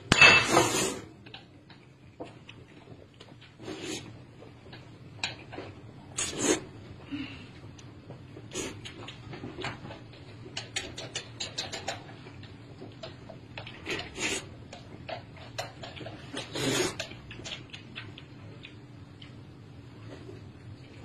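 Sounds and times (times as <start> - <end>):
wet chewing and lip-smacking: 7.8 - 19.9
noodle slurping: 16.3 - 17.1.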